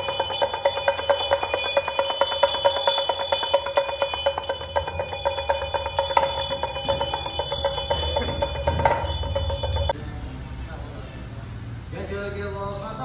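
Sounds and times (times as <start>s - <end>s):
music with jingling bells: 0.0s - 10.0s
sustained ringing tones: 0.0s - 10.0s.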